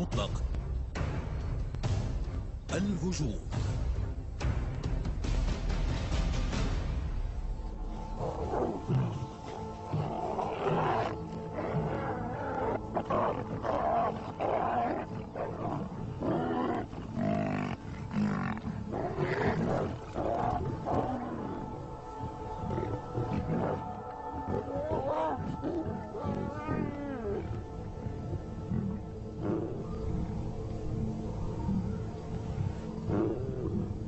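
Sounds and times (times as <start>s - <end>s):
background music: 0.0s - 34.0s
lions growling and roaring: 7.9s - 34.0s.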